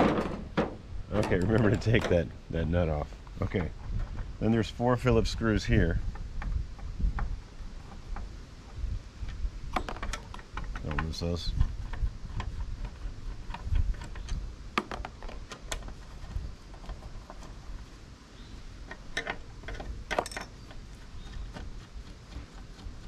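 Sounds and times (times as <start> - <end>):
metal screws clicking and rattling: 18.9 - 20.8.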